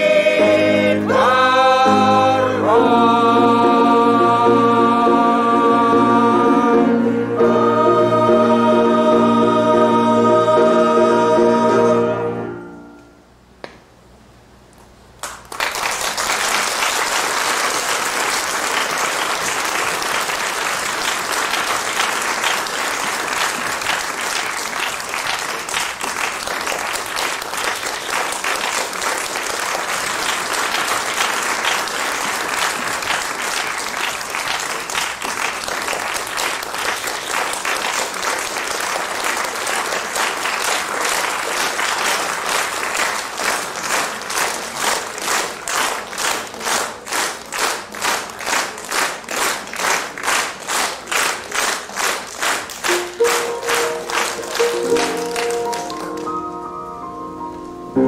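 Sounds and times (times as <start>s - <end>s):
audience applauding: 15.2s - 56.5s
rhythmic clapping: 15.2s - 56.7s.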